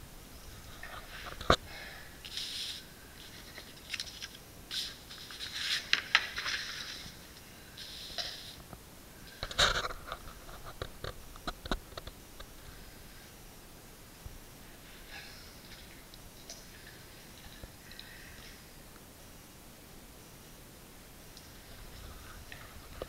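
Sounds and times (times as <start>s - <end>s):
scraping and rustling: 2.3s - 12.6s.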